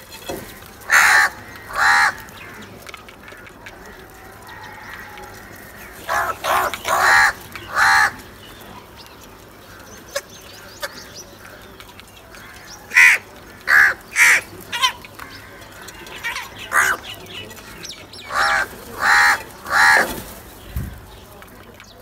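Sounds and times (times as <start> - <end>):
crows cawing: 0.2 - 8.6, 12.3 - 20.5.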